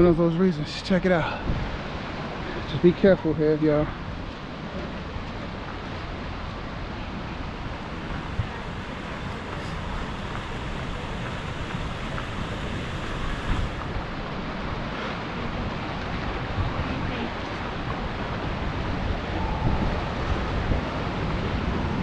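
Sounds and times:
waterfall rushing: 0.0s - 22.0s
wind buffeting microphone: 1.3s - 2.8s, 3.8s - 22.0s.

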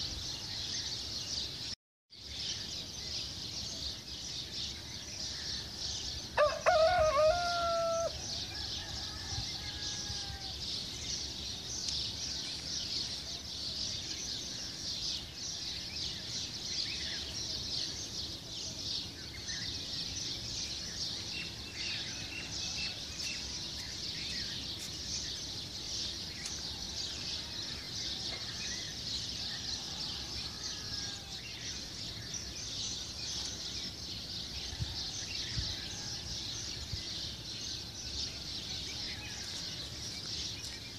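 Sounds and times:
rooster crowing: 6.4s - 10.6s, 29.5s - 31.5s.

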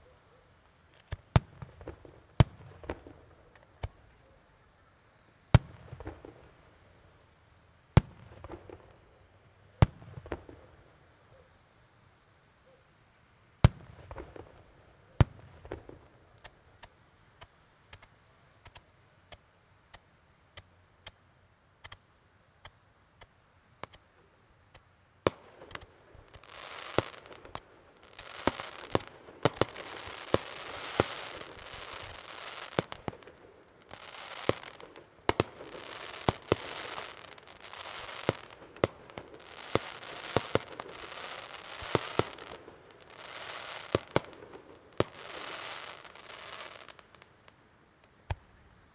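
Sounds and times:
firework pops: 15.2s - 21.2s, 21.8s - 22.0s, 22.6s - 24.1s, 24.7s - 48.5s
firework hissing: 25.8s - 47.1s.

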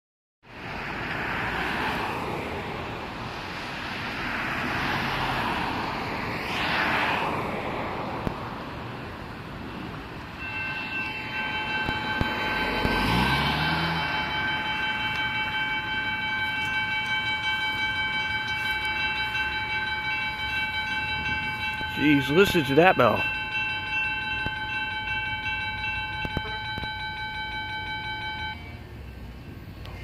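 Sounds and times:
road traffic passing: 0.4s - 30.0s
crossing bell ringing: 9.7s - 30.0s.

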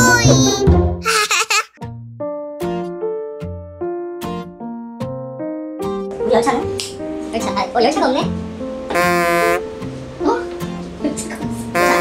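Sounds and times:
children's jingle: 0.0s - 1.6s
cartoon-like voice sounds: 0.0s - 1.8s.

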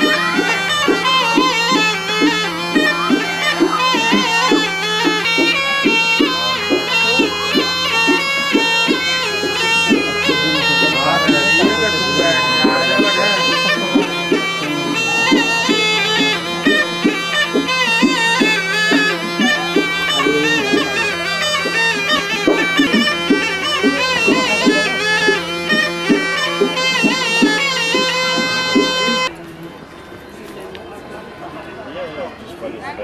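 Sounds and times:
reed pipe melody: 0.0s - 30.4s
steady drone: 5.5s - 25.4s.

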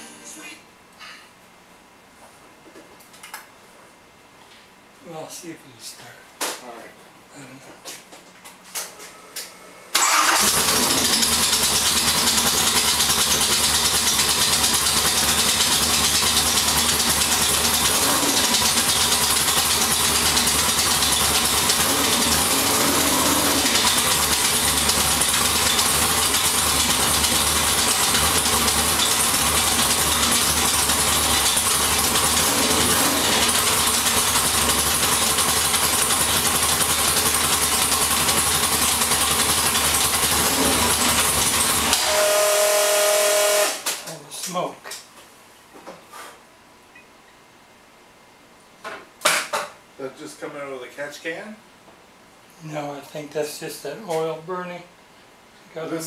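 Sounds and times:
loud vee eight engine running: 10.0s - 43.7s.

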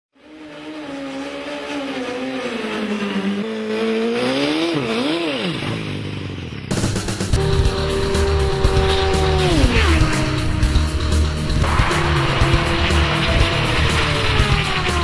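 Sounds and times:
vehicle whine: 0.2s - 15.0s
loud sudden burst: 11.6s - 15.0s.

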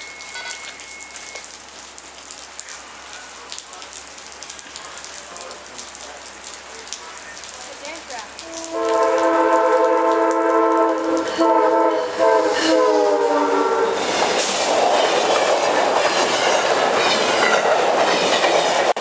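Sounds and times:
drips: 0.0s - 11.7s
steady rain: 0.0s - 19.0s
locomotive air horn chord: 8.4s - 14.0s.

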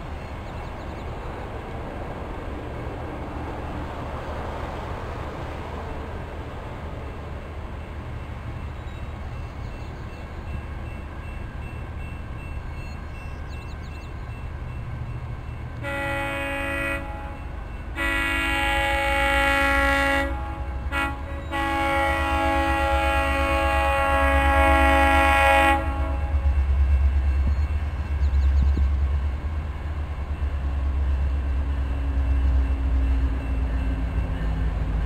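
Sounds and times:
train rumble: 0.0s - 35.0s
train air horn blasts: 15.8s - 26.8s.

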